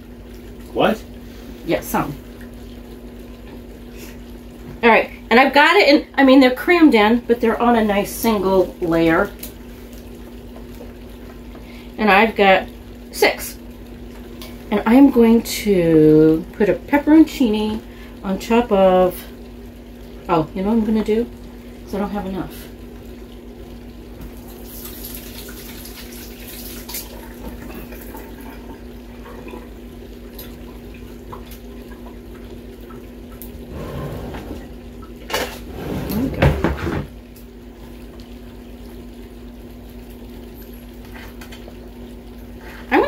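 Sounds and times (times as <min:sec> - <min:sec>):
faucet running into sink: 0:24.2 - 0:33.7.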